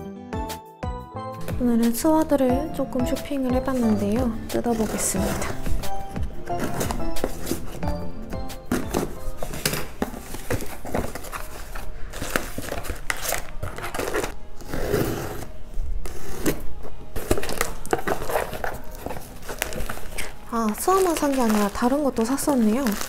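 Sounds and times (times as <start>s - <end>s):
background music: 0.0s - 23.0s
packaging rustling and tearing: 4.6s - 8.0s, 8.6s - 23.0s.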